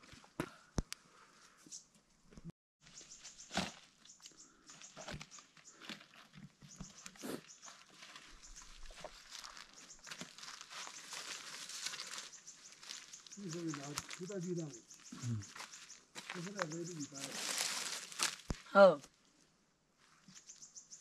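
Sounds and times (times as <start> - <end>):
dry leaves rustling and crackling: 7.6 - 14.7, 15.5 - 18.7.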